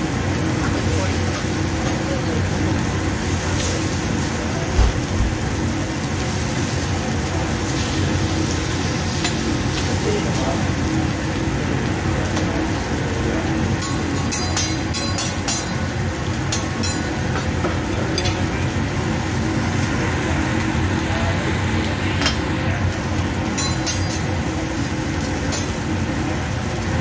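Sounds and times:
lobster sizzling on a griddle: 0.0s - 27.0s
metal spatula and fork clinking: 13.8s - 15.9s, 16.5s - 17.6s, 23.5s - 24.3s.

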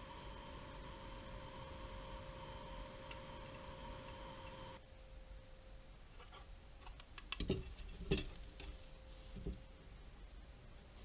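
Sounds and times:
electrical hum: 0.0s - 5.8s.

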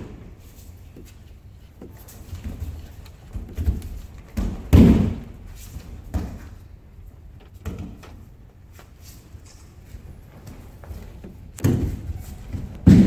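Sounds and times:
body thuds on mats: 3.4s - 6.5s, 11.6s - 13.0s
footfalls: 9.7s - 13.0s.

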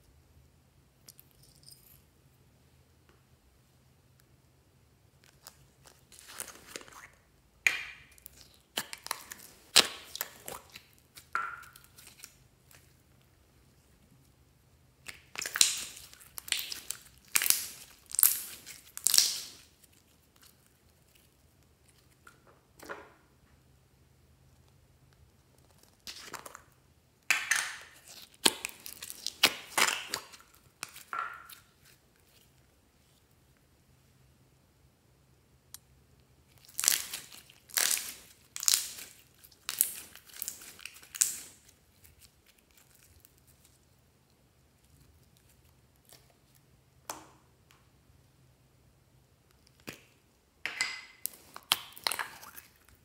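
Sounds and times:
slime squishing and popping: 5.2s - 12.9s, 15.0s - 19.7s, 27.3s - 31.9s, 36.6s - 43.4s, 51.1s - 53.0s.

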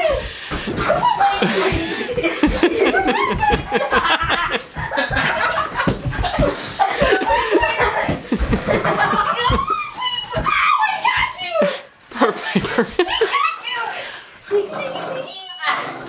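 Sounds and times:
footfalls on wooden floor: 0.0s - 11.5s
kids laughing and calling out: 0.0s - 16.0s.

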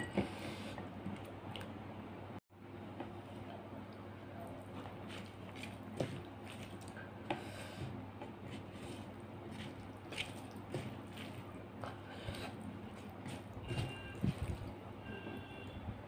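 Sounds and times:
fingers squishing rice: 8.2s - 14.7s.

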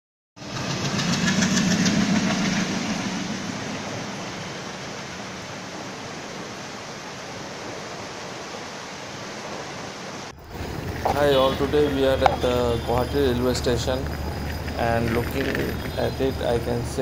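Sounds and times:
wheels clicking over rail joints: 0.4s - 5.9s, 10.4s - 17.0s
diesel locomotive engine: 0.4s - 8.8s, 10.3s - 17.0s
coaches rumbling and hissing: 10.4s - 17.0s.

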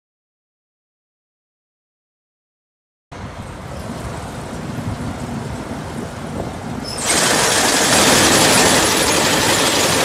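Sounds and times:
combine harvester rumbling: 3.2s - 10.0s
machine hiss and rattle: 6.8s - 10.0s.

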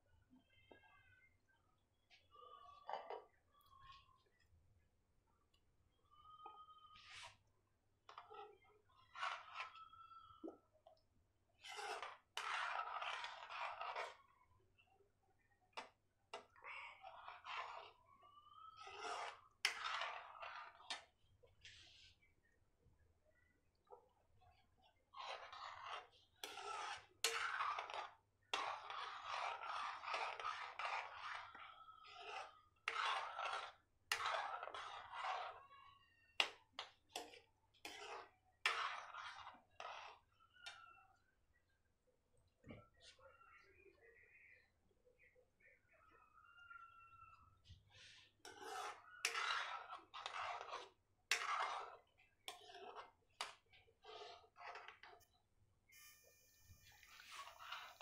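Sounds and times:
spoon scraping a metal pan: 9.0s - 10.0s, 11.6s - 14.2s, 15.8s - 18.0s, 18.8s - 22.1s, 25.2s - 35.6s, 36.4s - 40.8s, 48.0s - 55.2s, 56.0s - 58.0s.

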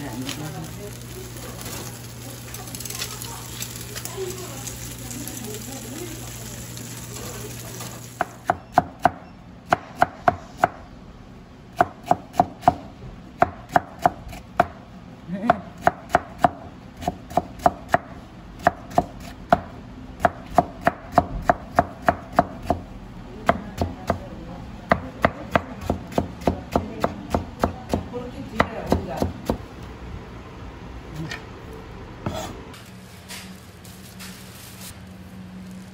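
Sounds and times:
fish grilling hiss: 0.0s - 8.2s.

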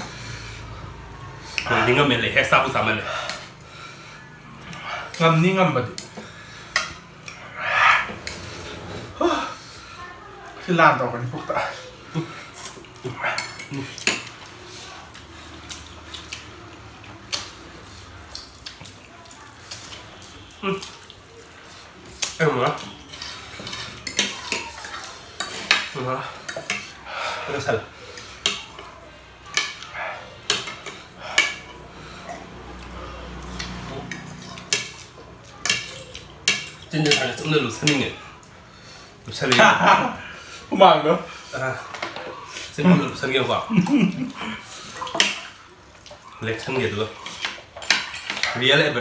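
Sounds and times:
people slurping noodles: 6.0s - 10.0s
forks clinking on ceramic plates: 22.7s - 27.0s, 33.6s - 38.1s, 47.2s - 48.6s.

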